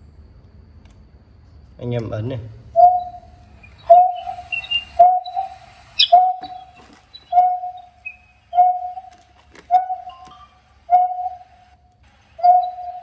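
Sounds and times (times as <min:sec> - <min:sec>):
faint high chirps: 0:02.7 - 0:13.0
whistled bird call from speaker: 0:02.8 - 0:11.6, 0:12.4 - 0:13.0.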